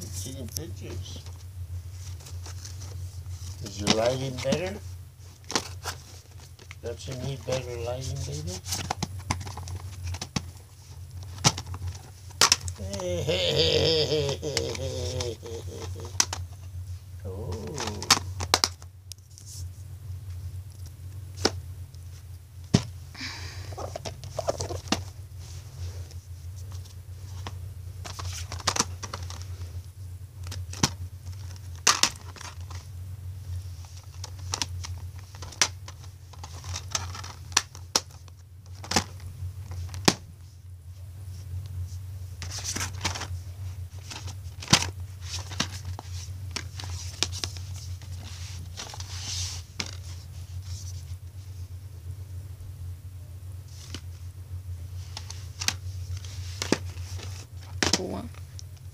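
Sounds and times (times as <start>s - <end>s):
crinkling: 0.0s - 51.8s, 53.6s - 58.9s
low steady hum: 0.0s - 58.9s
plastic cases clicking and snapping: 5.4s - 7.5s, 8.6s - 10.6s, 11.2s - 12.8s, 15.8s - 16.6s, 17.8s - 18.9s, 27.4s - 29.5s, 30.4s - 32.9s, 33.9s - 40.2s, 42.4s - 43.3s, 44.0s - 49.1s, 55.1s - 58.0s.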